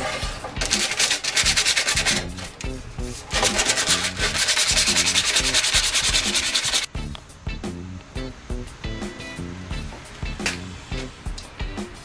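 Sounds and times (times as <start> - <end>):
sandpaper rubbing sheet metal: 0.0 - 6.9.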